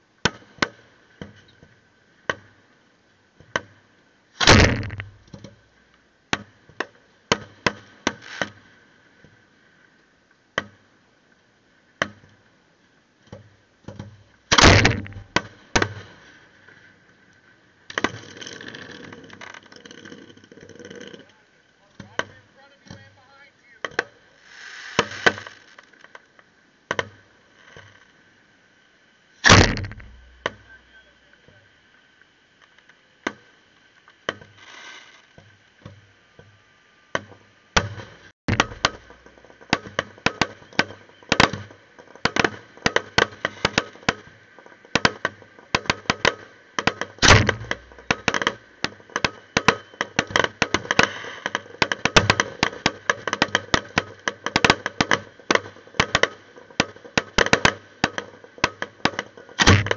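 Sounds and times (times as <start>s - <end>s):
loud firework booms: 4.4s - 5.3s, 14.5s - 16.1s, 29.5s - 30.7s, 47.2s - 48.4s
firework crackling: 4.4s - 5.4s, 7.5s - 8.8s, 14.4s - 16.9s, 23.6s - 26.2s, 34.6s - 35.4s, 42.4s - 44.1s, 45.0s - 58.2s
firework shells bursting: 4.4s - 5.5s, 14.4s - 16.4s, 29.4s - 30.9s, 37.8s - 59.9s.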